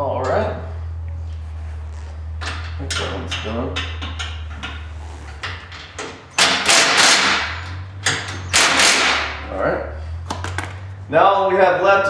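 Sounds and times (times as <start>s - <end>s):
impact driver bursts: 6.4s - 7.6s, 8.4s - 9.4s.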